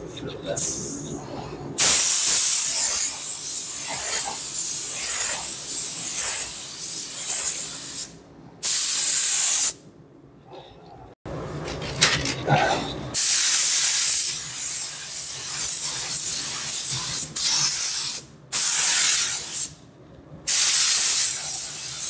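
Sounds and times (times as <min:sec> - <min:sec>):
paint spray gun hissing: 0:01.8 - 0:09.8, 0:13.2 - 0:19.7, 0:20.5 - 0:22.0.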